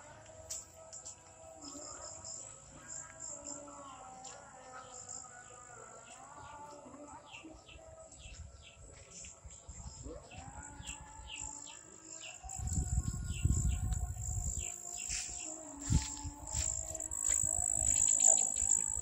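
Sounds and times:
high insect drone: 11.3s - 19.0s
birds chirping: 16.4s - 19.0s.

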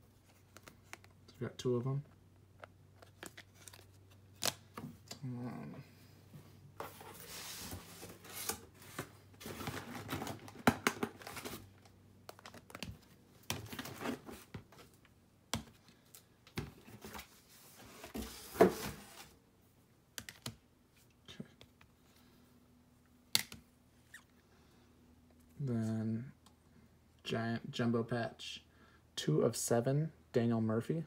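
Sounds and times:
plastic cases clacking: 9.4s - 11.6s.

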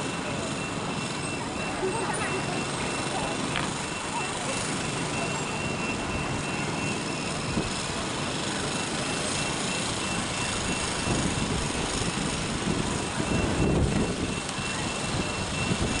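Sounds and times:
thin high tone: 0.0s - 12.4s
street ambience hiss: 0.0s - 16.0s
tram pulling away on track: 0.0s - 16.0s.

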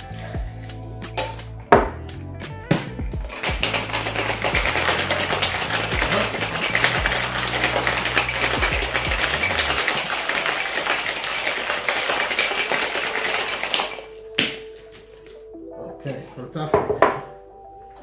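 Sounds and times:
ice rattling in cocktail shaker: 3.3s - 14.2s.

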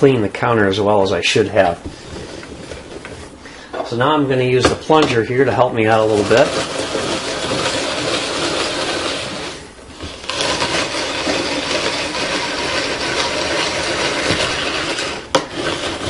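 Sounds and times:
juicer crushing carrots: 5.9s - 16.0s.

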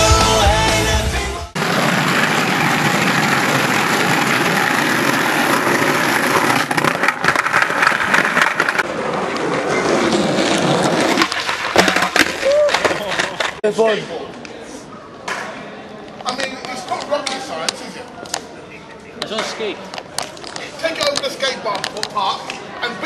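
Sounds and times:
skateboard wheels rolling on tarmac: 1.6s - 13.6s, 19.2s - 23.0s.

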